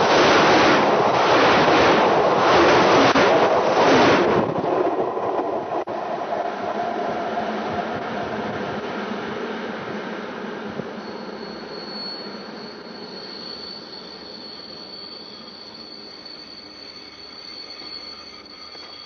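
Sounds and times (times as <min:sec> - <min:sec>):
train rumble: 0:00.0 - 0:14.5
high-pitched wheel squeal: 0:10.8 - 0:19.0.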